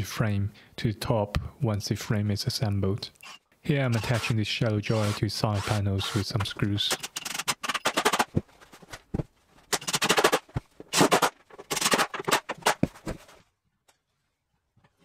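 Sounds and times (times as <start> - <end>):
impact driver hammering screws: 3.2 - 8.3, 9.7 - 12.8.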